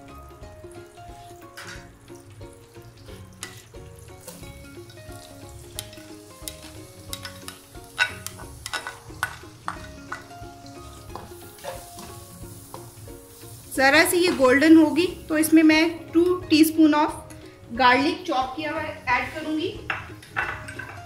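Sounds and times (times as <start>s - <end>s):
onion sizzling in oil: 0.0s - 21.0s
spatula knocking a bowl: 19.9s - 21.0s.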